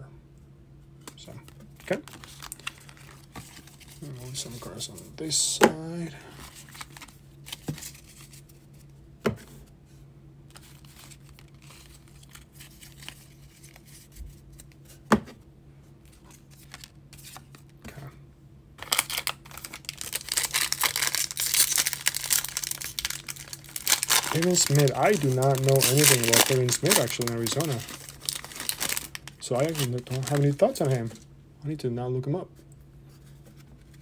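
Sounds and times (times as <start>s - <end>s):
foil wrapper tearing and crinkling: 1.8s - 4.0s, 6.5s - 8.2s, 18.8s - 31.2s.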